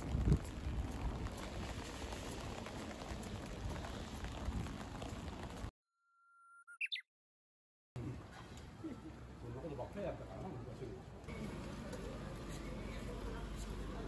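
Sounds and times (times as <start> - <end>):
electronic tone chirping upward: 6.0 - 7.0.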